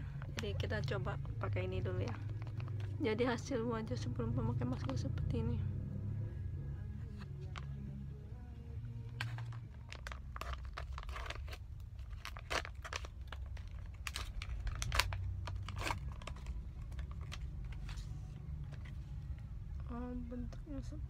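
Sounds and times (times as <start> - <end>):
plastic sachet tearing and crinkling: 2.1 - 3.0, 9.1 - 19.0.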